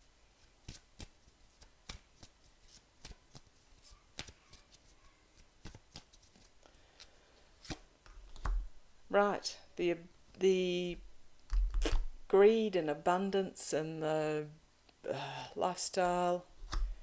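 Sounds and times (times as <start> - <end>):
deck of cards shuffling: 0.6 - 8.7, 11.5 - 12.1.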